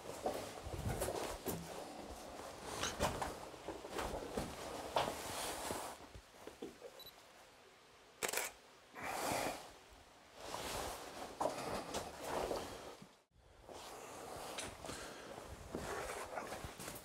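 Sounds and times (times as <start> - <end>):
rustles and scrapes: 0.0 - 6.6, 10.4 - 17.0.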